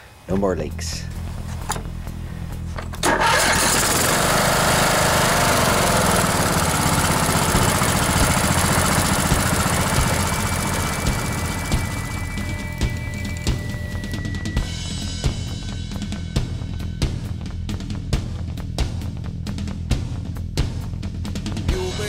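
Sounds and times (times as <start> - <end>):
mower engine starting and running: 2.6 - 14.8.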